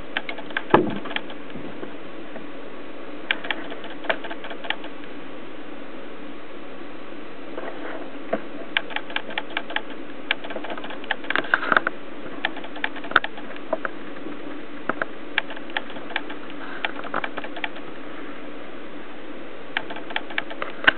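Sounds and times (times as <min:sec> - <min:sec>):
steady low hum: 0:00.0 - 0:20.9.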